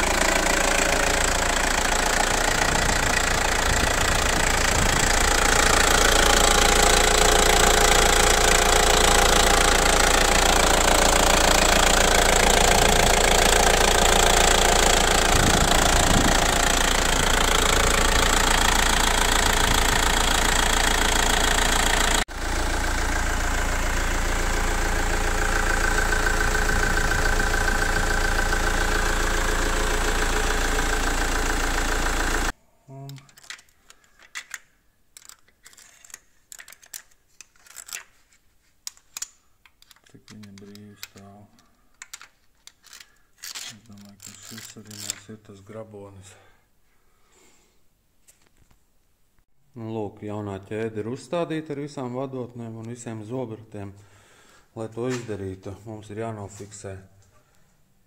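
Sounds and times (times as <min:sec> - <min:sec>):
diesel engine running: 0:00.0 - 0:32.6.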